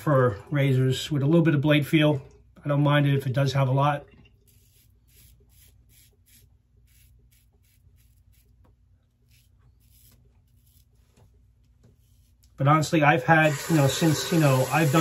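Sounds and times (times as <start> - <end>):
razor scratching through stubble: 4.4 - 12.8.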